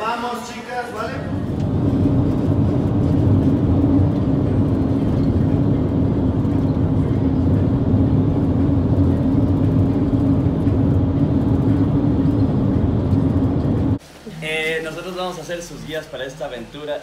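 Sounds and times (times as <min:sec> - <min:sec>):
vehicle road and engine drone: 0:01.0 - 0:14.0.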